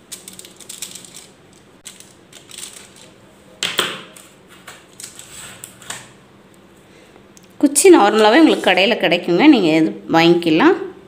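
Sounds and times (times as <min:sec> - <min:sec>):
aluminium foil crinkling and tearing: 0:00.0 - 0:03.2, 0:04.1 - 0:06.0.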